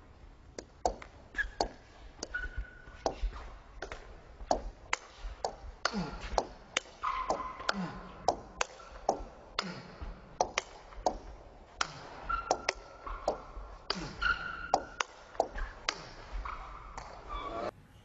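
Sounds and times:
table tennis ball hits: 0.6s - 17.3s
short squeaks: 1.3s - 3.6s, 12.2s - 17.7s.

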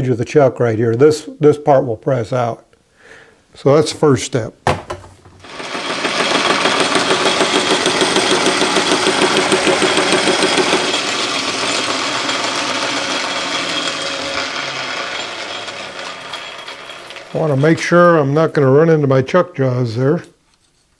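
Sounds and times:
metal lathe boring pipe: 5.4s - 18.1s.

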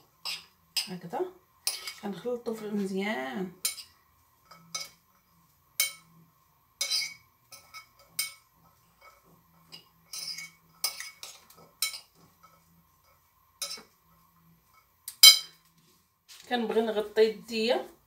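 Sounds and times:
metal spoon scraping glass bowl: 6.8s - 8.3s, 10.1s - 12.6s.

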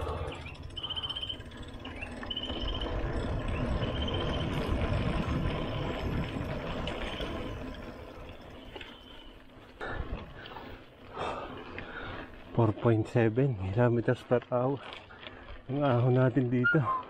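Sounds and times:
bike tyres rumbling on concrete: 0.0s - 17.0s
wind buffeting microphone: 1.4s - 8.5s.

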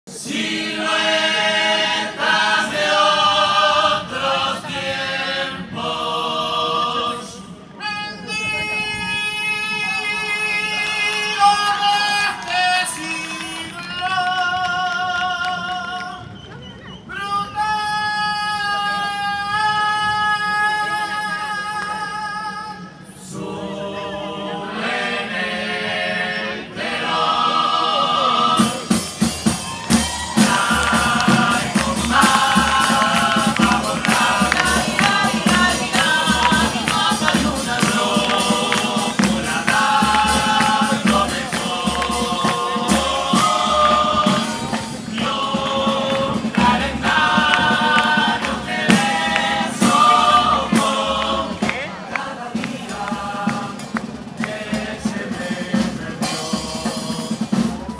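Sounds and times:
voices singing: 0.1s - 16.4s, 22.8s - 57.9s
live band through speakers: 0.1s - 57.9s
steady drum beat: 28.4s - 57.9s.

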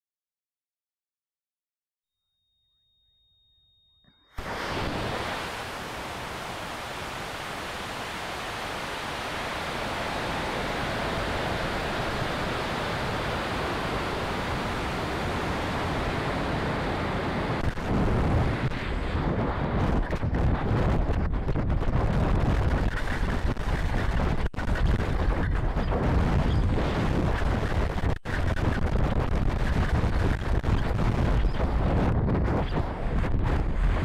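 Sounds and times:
rocket motor burning: 4.4s - 20.4s
rush of air over rocket: 4.4s - 21.0s
gusty wind buffeting: 4.4s - 34.0s.

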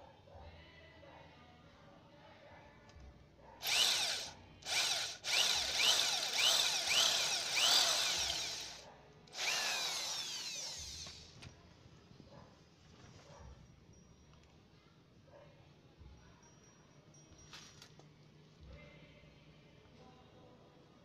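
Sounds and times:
electric drill boring into metal: 3.6s - 11.4s.

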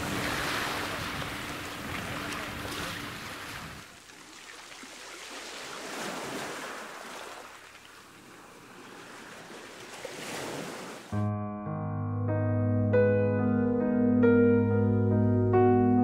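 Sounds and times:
waves washing against rocks: 0.0s - 7.6s
piano music: 11.1s - 16.0s.

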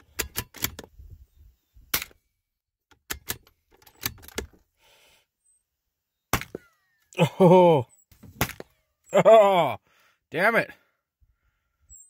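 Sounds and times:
rifle bolt clicks and knocks: 0.0s - 1.0s, 1.9s - 2.2s, 2.9s - 4.6s.

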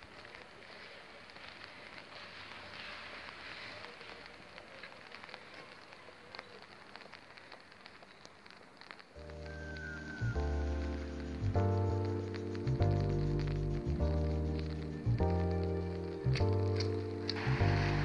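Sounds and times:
light rain falling: 0.0s - 18.0s
background music: 9.2s - 18.0s.

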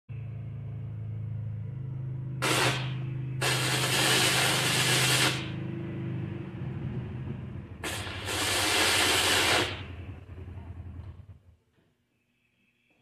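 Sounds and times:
steady low hum: 0.1s - 13.0s
welding arc crackling and hissing: 2.4s - 5.7s, 7.8s - 10.0s.

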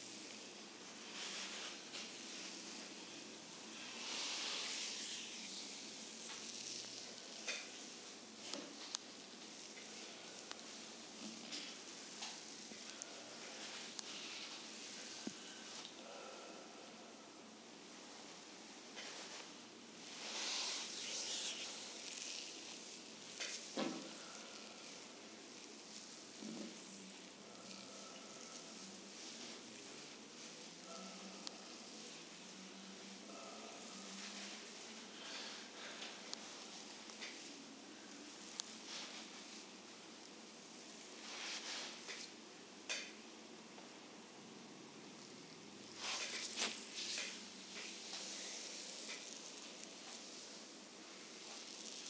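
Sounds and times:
hands sliding over skin: 3.7s - 7.9s, 19.0s - 32.4s, 41.2s - 42.3s, 46.0s - 52.0s.

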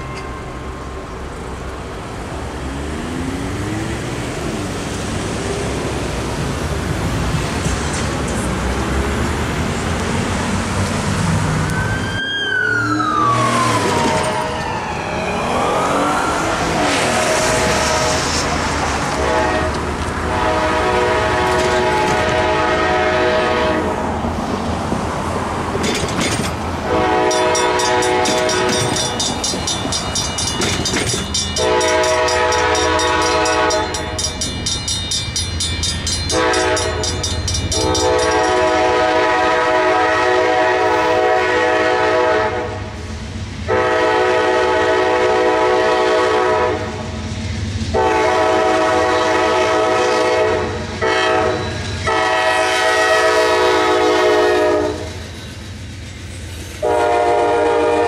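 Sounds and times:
crossing bell ringing: 0.0s - 1.9s, 27.0s - 39.3s, 51.3s - 52.5s
locomotive air horn blasts: 16.8s - 18.5s, 19.1s - 24.0s, 26.8s - 29.1s, 31.6s - 34.2s, 36.3s - 42.9s, 43.7s - 47.0s, 47.9s - 55.1s, 56.8s - 58.0s.

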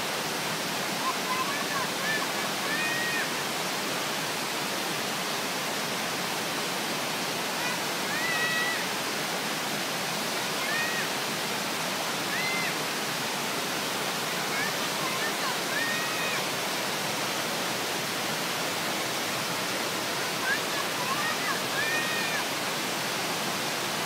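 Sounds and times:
waterfall pouring onto rocks: 1.0s - 3.6s, 7.1s - 9.0s, 10.6s - 24.0s.

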